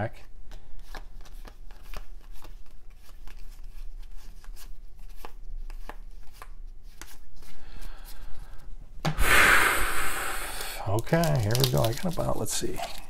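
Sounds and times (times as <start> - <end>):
cardboard cards clicking: 0.5 - 7.2, 10.6 - 13.0.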